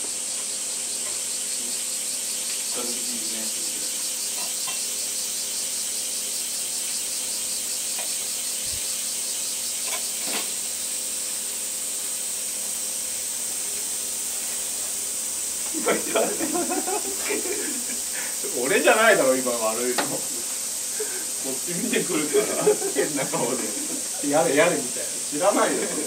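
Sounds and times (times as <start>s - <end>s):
cicadas buzzing: 0.0s - 26.0s.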